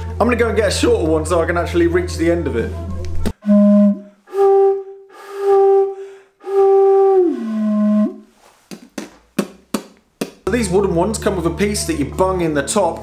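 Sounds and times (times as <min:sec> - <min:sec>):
wooden flute pipe hooting: 0:01.9 - 0:08.4.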